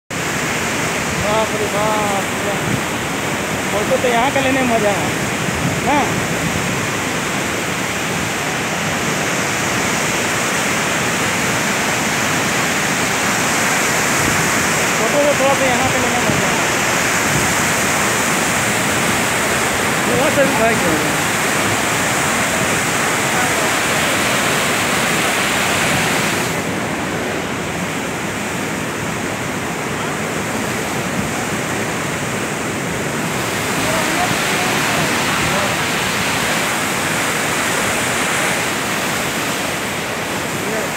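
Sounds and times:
river water rushing: 0:00.1 - 0:40.9.

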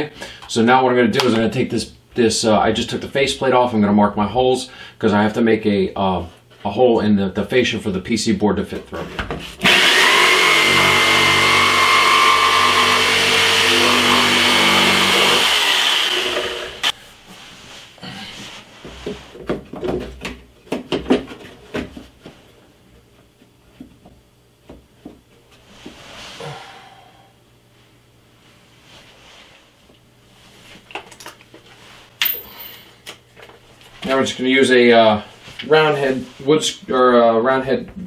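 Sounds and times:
jigsaw cutting: 0:09.6 - 0:16.9.

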